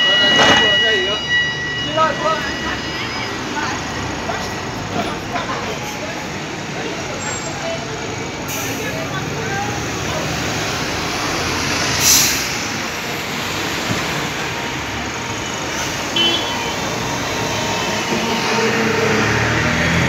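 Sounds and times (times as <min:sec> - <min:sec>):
diesel bus engines running: 0:01.9 - 0:20.0
air brake hiss: 0:12.0 - 0:12.6.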